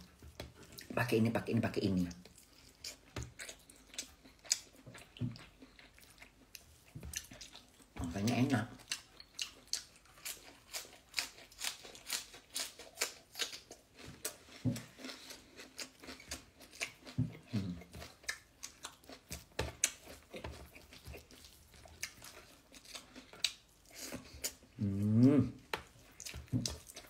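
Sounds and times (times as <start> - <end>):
chewing food: 0.0 - 27.0
closed-mouth hums: 24.8 - 25.7.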